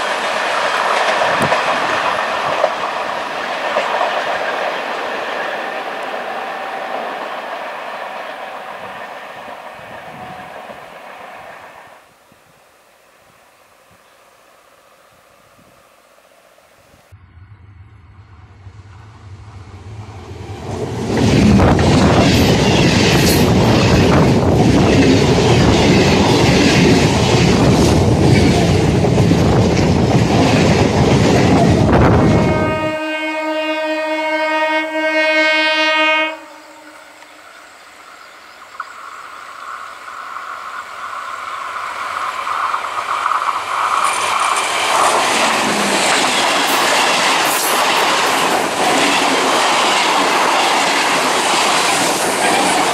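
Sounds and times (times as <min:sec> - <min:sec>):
train passing at speed: 0:00.0 - 0:12.2, 0:13.4 - 0:52.9
train horn blast: 0:31.8 - 0:37.4.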